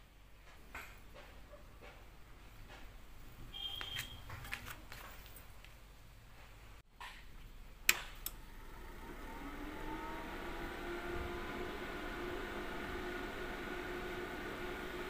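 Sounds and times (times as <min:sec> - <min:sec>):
cooling fan humming: 0:07.6 - 0:15.0.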